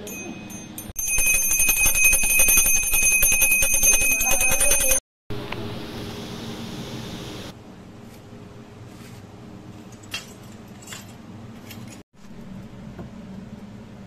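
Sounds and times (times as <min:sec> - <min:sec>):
hand bell ringing rapidly: 0:00.0 - 0:05.0.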